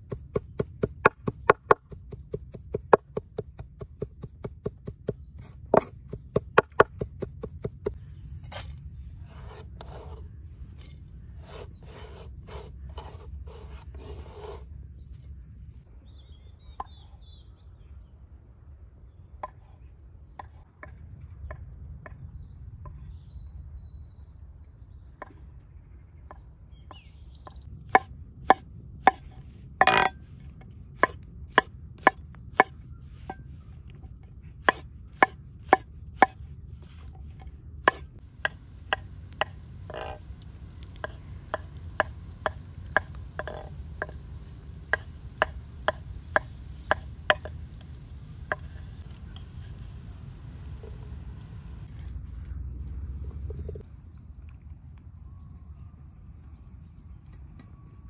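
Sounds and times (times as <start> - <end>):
knife chopping on wooden board: 0.0 - 8.0, 28.0 - 29.2, 31.0 - 33.4, 34.6 - 36.4, 37.9 - 40.2, 40.9 - 44.2, 44.9 - 47.6
low rumble: 47.8 - 56.8.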